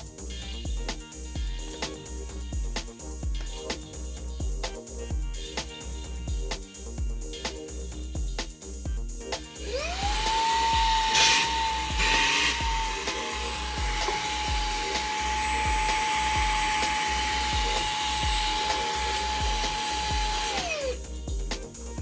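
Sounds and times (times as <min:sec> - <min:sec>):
handheld vacuum motor whining: 0:09.6 - 0:21.0.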